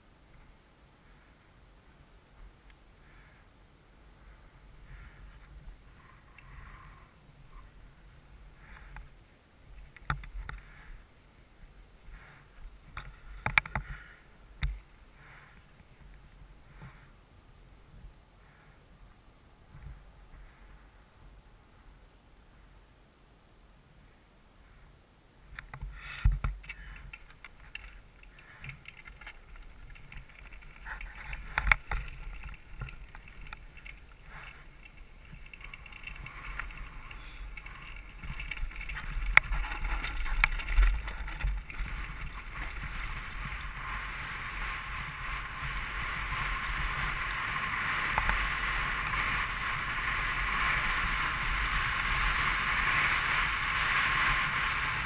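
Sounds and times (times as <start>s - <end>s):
bike wheels knocking on stones: 25.7s - 55.0s.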